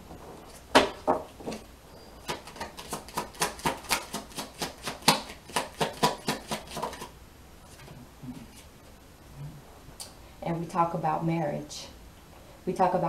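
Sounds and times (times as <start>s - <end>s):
cards slapping while shuffled: 2.3s - 7.1s.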